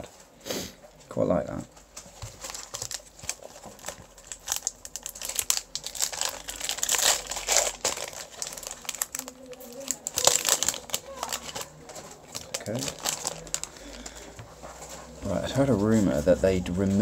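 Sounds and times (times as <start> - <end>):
foil wrapper crinkling: 2.0 - 14.2.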